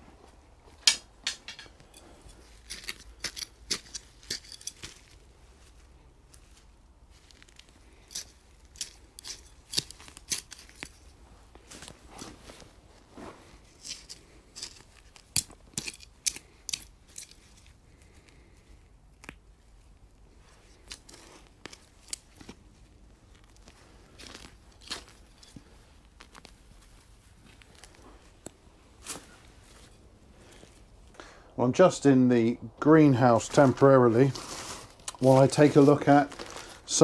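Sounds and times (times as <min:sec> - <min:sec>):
plant stems snapping: 0:07.3 - 0:11.1, 0:13.8 - 0:18.1, 0:19.1 - 0:19.5, 0:20.8 - 0:22.6.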